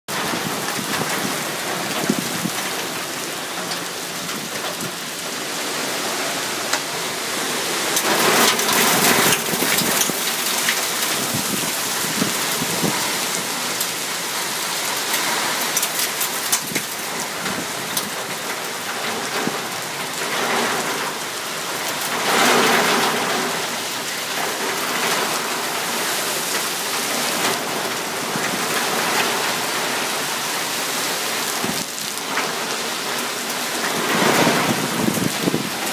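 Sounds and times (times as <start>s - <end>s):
heavy rain pouring: 0.1s - 35.9s.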